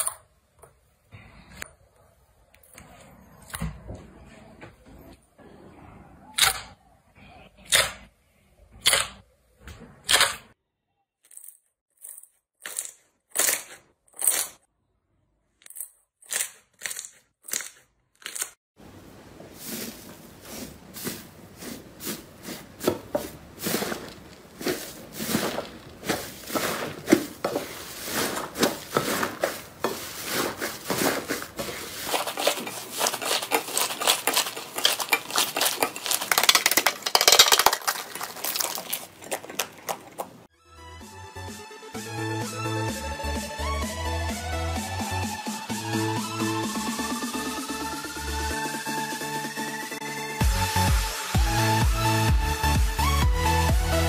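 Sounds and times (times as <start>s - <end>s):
slime crackling and crunching: 11.3s - 14.6s, 21.6s - 40.5s.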